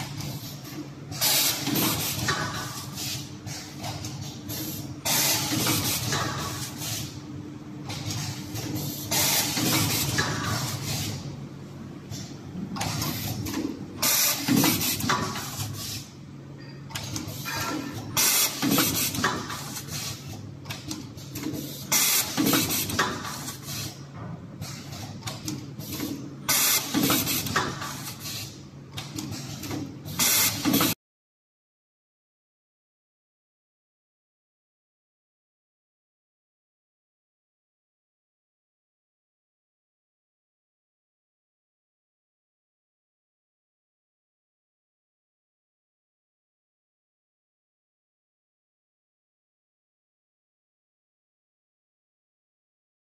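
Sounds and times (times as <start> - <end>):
pneumatic hiss and clatter: 0.1 - 7.2, 7.9 - 11.3, 12.1 - 16.2, 16.9 - 31.0.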